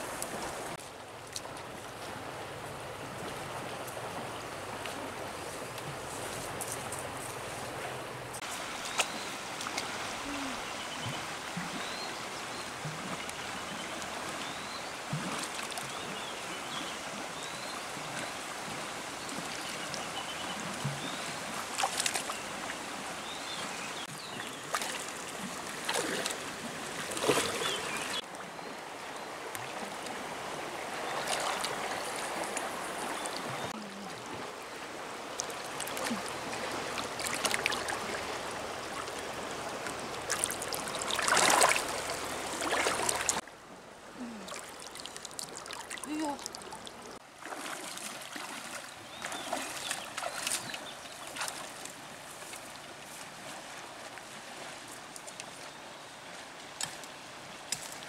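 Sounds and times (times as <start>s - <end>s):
river water flowing over stones: 0.0s - 58.0s
splashes from wading: 8.5s - 28.2s, 30.8s - 34.5s, 35.3s - 43.4s, 44.2s - 55.7s.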